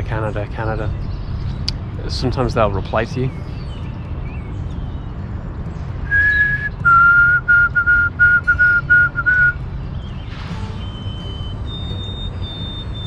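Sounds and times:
person whistling birdsong imitation: 0:06.0 - 0:13.0.

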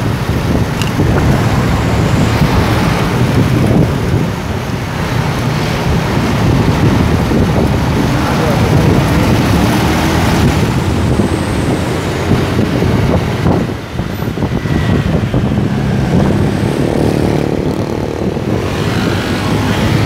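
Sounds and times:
motorcycle engine: 0:00.0 - 0:20.0
other motorcycles: 0:00.0 - 0:20.0
wind noise: 0:00.0 - 0:20.0
truck passing close: 0:00.1 - 0:13.8.

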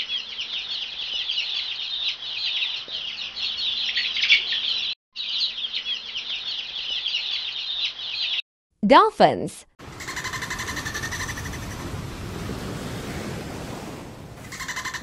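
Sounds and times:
chicks peeping: 0:00.1 - 0:08.4.

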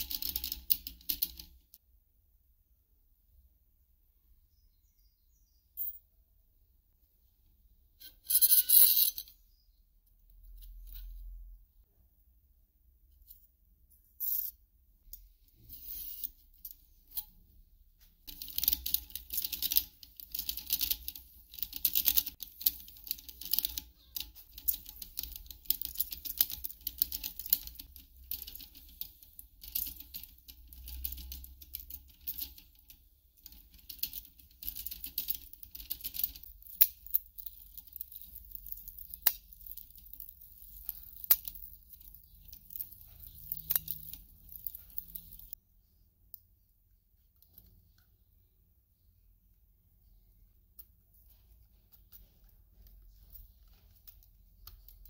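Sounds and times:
rollers scraping metal strip: 0:00.0 - 0:01.6, 0:18.3 - 0:45.6.

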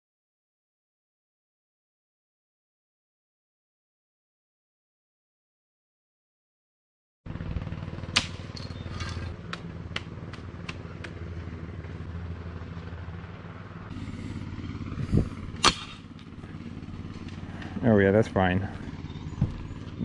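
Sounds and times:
excavator diesel engine running: 0:07.3 - 0:20.0.

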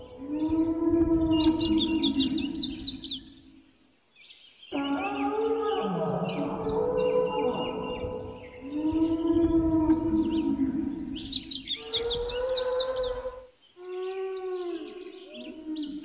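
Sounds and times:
low drawn-out animal calls: 0:00.0 - 0:03.5, 0:04.7 - 0:16.0
birds chirping: 0:00.0 - 0:16.0.

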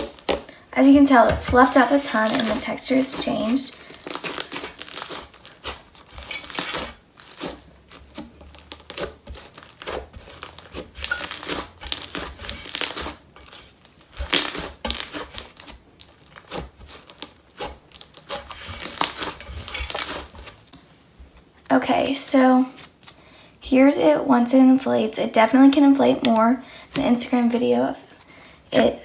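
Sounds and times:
slime crackling and popping: 0:00.0 - 0:00.5, 0:01.2 - 0:20.6.

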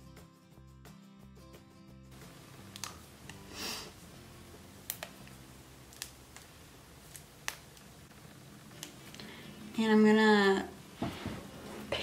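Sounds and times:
background music: 0:00.0 - 0:06.4.

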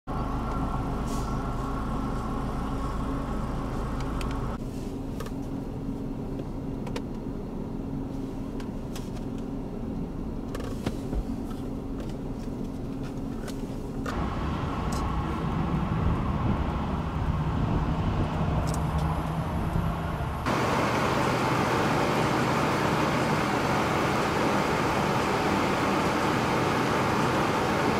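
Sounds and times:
vehicle engine idling: 0:00.1 - 0:05.0, 0:13.7 - 0:27.9.

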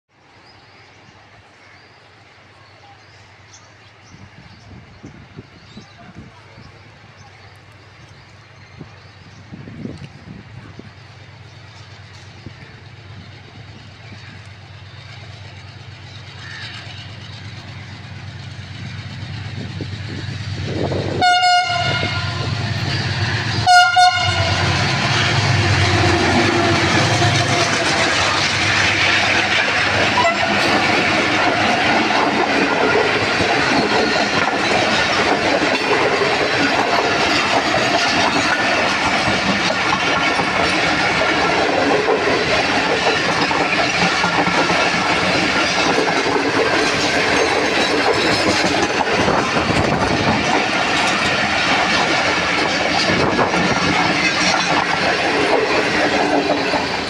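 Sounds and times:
locomotive rumble: 0:02.4 - 0:57.0
wheel and rail clatter: 0:05.7 - 0:57.0
train horn blasts: 0:21.1 - 0:22.7, 0:23.5 - 0:27.8, 0:30.2 - 0:30.7.

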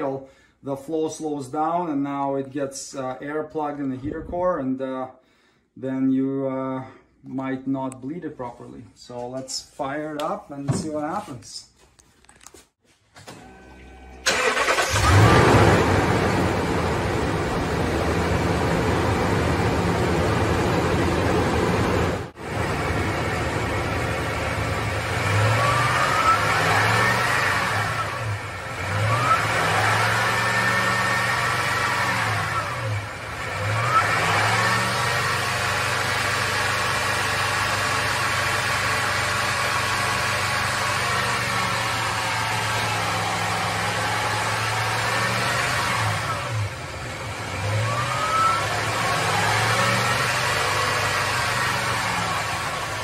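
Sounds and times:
truck engine revving: 0:14.2 - 0:53.0.

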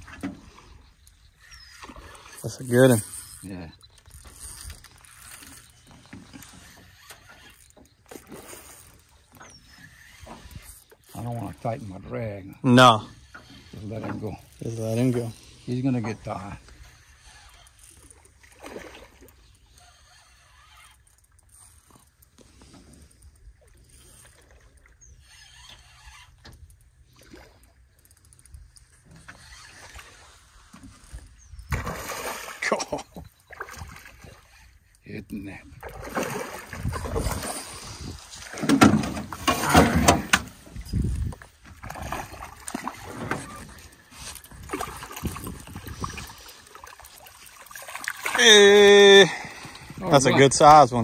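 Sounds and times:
water lapping against metal boat: 0:00.0 - 0:51.0
fishing reel clicking: 0:02.2 - 0:05.8, 0:19.6 - 0:22.4, 0:25.1 - 0:27.0.

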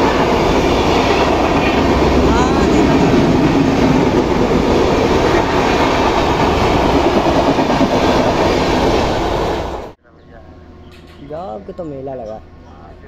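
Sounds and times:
train wheels rumbling on rails: 0:00.0 - 0:10.0.

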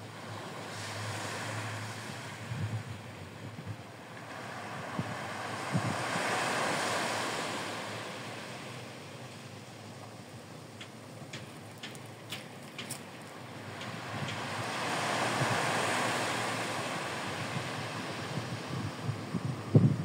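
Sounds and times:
small waves breaking on beach: 0:00.0 - 0:20.0
wind buffeting microphone: 0:02.4 - 0:03.9, 0:04.8 - 0:06.3, 0:16.9 - 0:20.0
faint high ticks: 0:10.8 - 0:13.1.

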